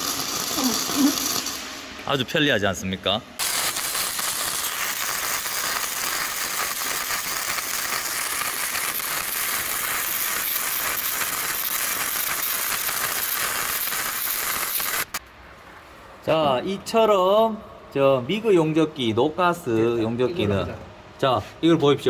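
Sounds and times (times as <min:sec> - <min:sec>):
welding arc crackling: 0:00.0 - 0:02.3, 0:03.4 - 0:15.2.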